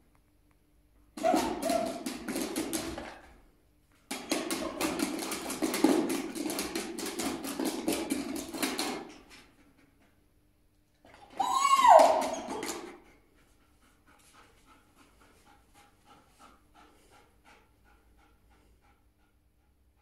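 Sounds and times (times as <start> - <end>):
dog tapping and clicking on object: 1.2 - 3.3, 4.1 - 9.4, 11.9 - 13.0.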